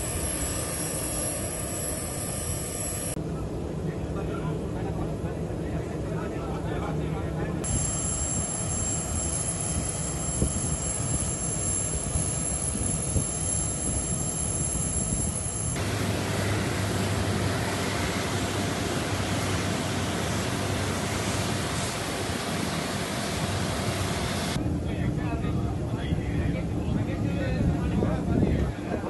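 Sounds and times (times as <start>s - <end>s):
thin high whine: 0.0s - 3.2s, 7.6s - 22.4s
aircraft turbine engine noise: 0.0s - 29.0s.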